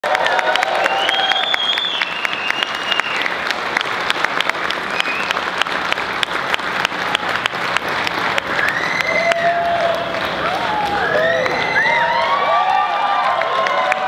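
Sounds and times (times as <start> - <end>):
audience applauding: 0.0 - 14.0
high whistle: 0.8 - 3.3, 4.9 - 5.4.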